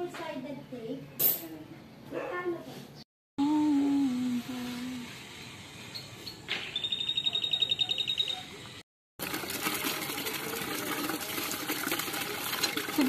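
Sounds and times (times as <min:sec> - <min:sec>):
bird trilling: 0:05.8 - 0:08.6
water gushing into bucket: 0:09.2 - 0:13.0.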